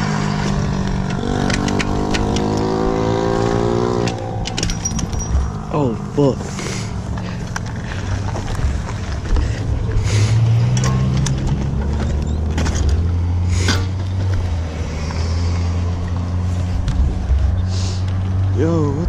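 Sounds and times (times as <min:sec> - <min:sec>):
motorbike engine running: 0:00.0 - 0:14.3.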